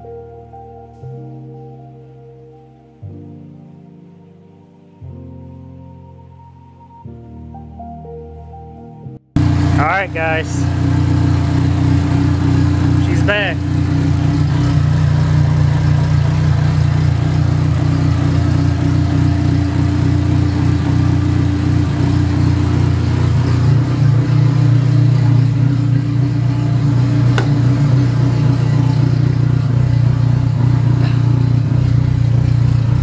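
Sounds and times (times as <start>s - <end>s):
loud car engine idling: 9.4s - 33.0s.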